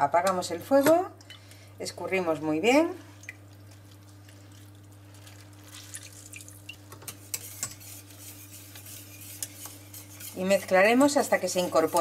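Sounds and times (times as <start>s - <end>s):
water dripping and trickling: 3.2s - 6.8s.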